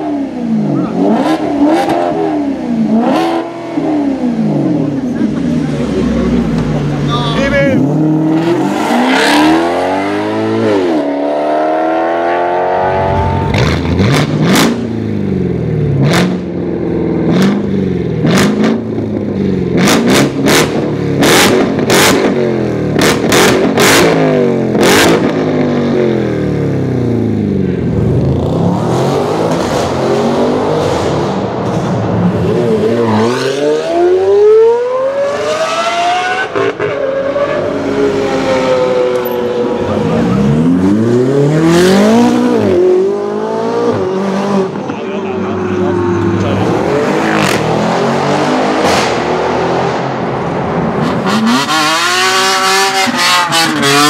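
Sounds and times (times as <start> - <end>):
car accelerating: 0.0 - 54.0
car engine revving: 0.0 - 54.0
car engine blipped: 12.0 - 54.0.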